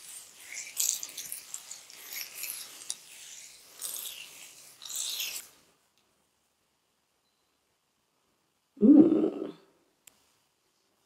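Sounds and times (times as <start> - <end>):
fingers rubbing through damp hair: 0.0 - 5.7.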